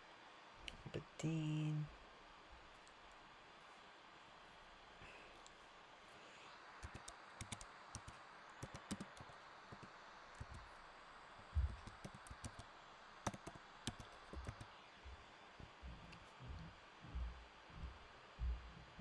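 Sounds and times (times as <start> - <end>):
typing on computer keyboard: 6.8 - 10.7, 11.6 - 14.8.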